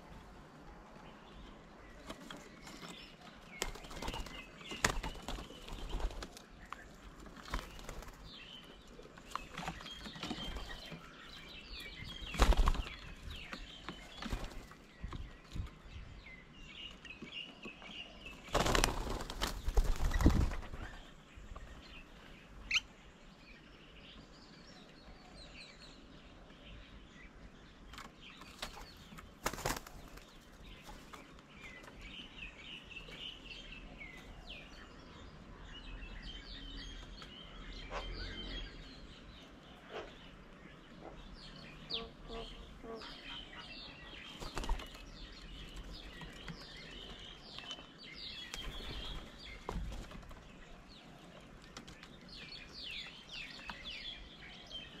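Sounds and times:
small birds chirping: 0.0s - 55.0s
birds' wings flapping: 3.4s - 6.6s, 7.3s - 8.4s, 12.2s - 13.5s, 14.1s - 14.8s, 18.4s - 21.1s, 28.4s - 31.1s, 44.3s - 46.7s, 48.4s - 50.5s.

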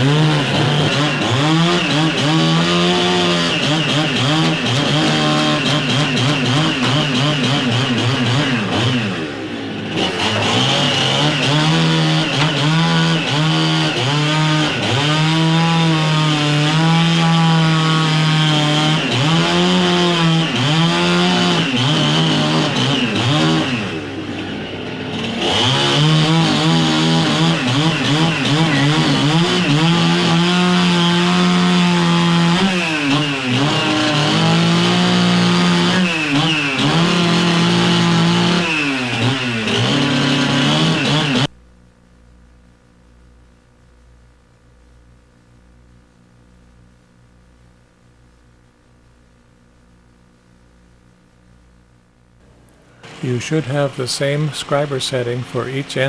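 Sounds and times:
chainsaw running: 0.0s - 41.5s, 53.0s - 56.0s.

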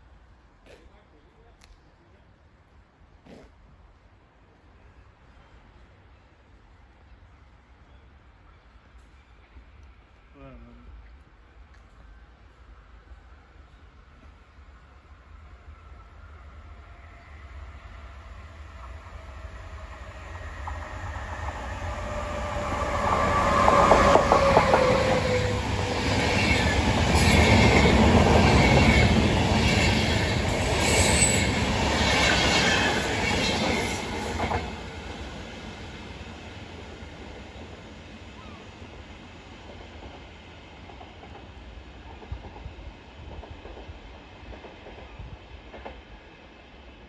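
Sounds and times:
distant train rumble: 4.0s - 47.0s
electric locomotive whine: 10.9s - 47.0s.

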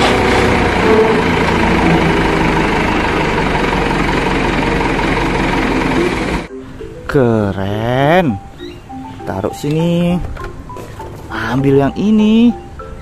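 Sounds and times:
dump truck engine running: 0.0s - 6.5s.

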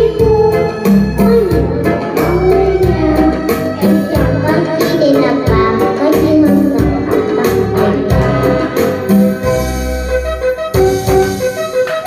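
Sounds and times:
girl singing into microphone: 0.0s - 9.0s
karaoke backing track: 0.0s - 12.0s.

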